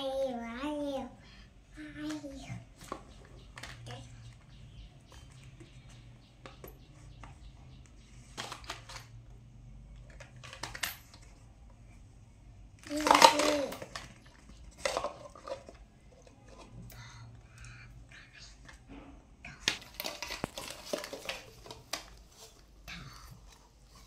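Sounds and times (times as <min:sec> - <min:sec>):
plastic toys clattering: 0:02.0 - 0:07.4, 0:08.1 - 0:11.5, 0:12.7 - 0:16.9, 0:19.5 - 0:22.8.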